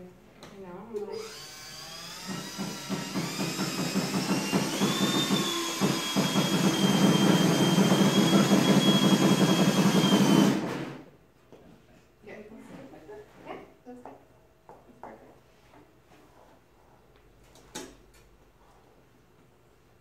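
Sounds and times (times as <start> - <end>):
power drill drilling into wood: 1.2 - 11.0.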